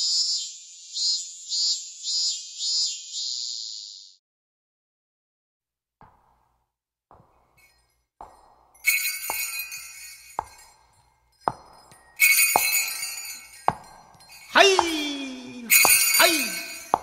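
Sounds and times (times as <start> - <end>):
bright jingling: 7.2 - 17.0
bell strikes: 7.6 - 17.0.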